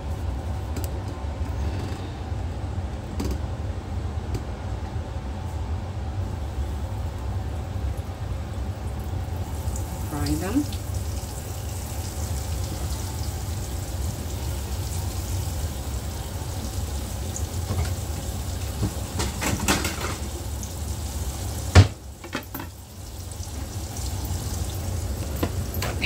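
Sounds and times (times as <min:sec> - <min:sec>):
dough sizzling in a pan: 0:06.4 - 0:25.8.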